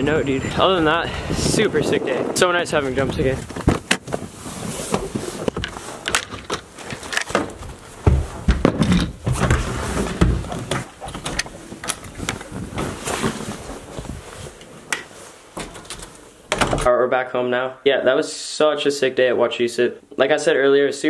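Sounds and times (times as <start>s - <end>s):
heavy thumps: 2.8s - 14.2s
footsteps: 2.8s - 15.8s
camera handling rustling: 3.4s - 7.8s
doors clicking and knocking: 5.0s - 12.9s, 15.6s - 16.9s.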